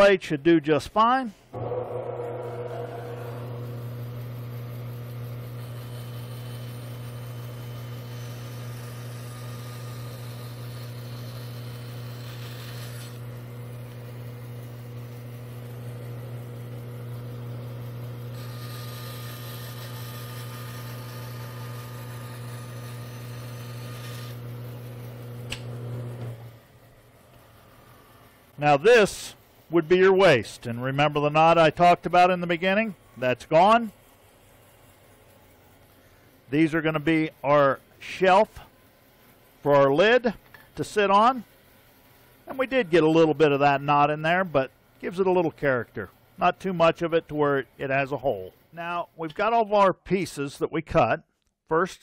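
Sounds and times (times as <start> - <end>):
bandsaw cutting wood: 1.6 - 26.4
bandsaw motor humming: 1.6 - 26.7
switch click: 25.4 - 25.7.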